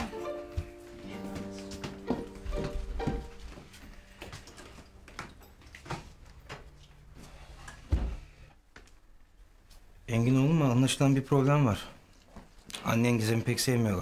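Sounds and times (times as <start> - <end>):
footsteps on wooden floor: 0.0 - 9.8.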